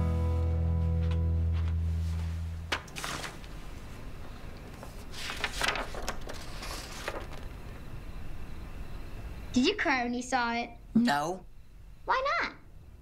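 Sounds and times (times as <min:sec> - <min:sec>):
guitar and bass music: 0:00.0 - 0:02.6
paper rustling: 0:01.6 - 0:07.8.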